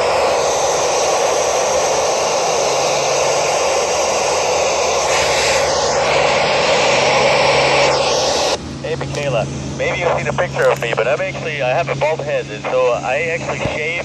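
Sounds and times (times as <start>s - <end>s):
radio static hiss: 5.1s - 14.0s.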